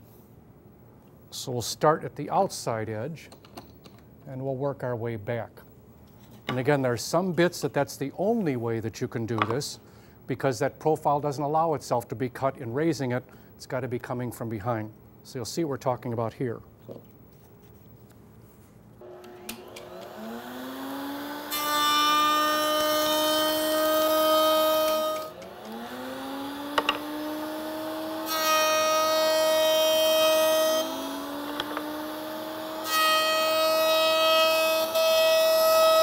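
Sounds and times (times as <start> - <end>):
router motor whine: 19.0 - 33.6
router cutting wood hiss: 19.0 - 35.4.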